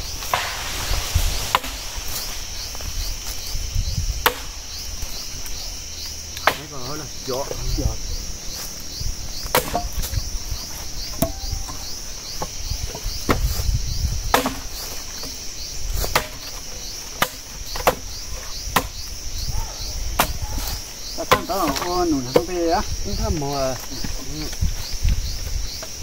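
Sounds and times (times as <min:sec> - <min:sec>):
insects chirping: 0:00.0 - 0:26.0
axe chopping wood: 0:04.2 - 0:04.6, 0:06.4 - 0:06.7, 0:09.4 - 0:10.2, 0:11.1 - 0:13.5, 0:14.3 - 0:15.4, 0:16.0 - 0:16.6, 0:17.2 - 0:19.0, 0:20.2 - 0:20.5, 0:21.2 - 0:22.7.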